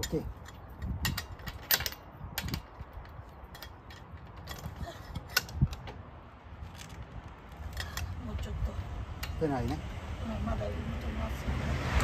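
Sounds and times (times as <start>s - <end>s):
lug wrench metallic clicks: 0.0s - 6.0s.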